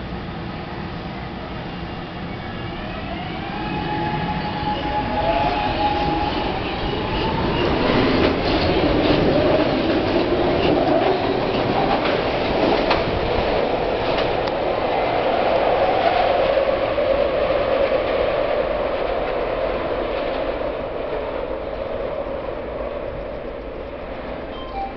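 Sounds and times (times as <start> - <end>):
subway train motor whine: 0.0 - 19.9
wheels rumbling on rails: 1.3 - 24.9.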